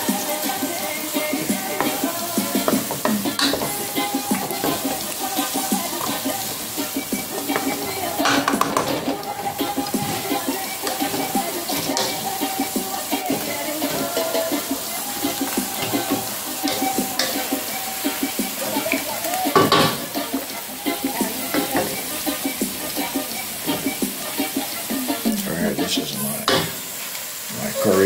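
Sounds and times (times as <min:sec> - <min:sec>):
chicken sizzling in a pan: 0:00.0 - 0:28.0
wooden spatula scraping a pan: 0:01.2 - 0:17.8
spatula knocking against pan: 0:01.5 - 0:17.6, 0:19.5 - 0:20.1.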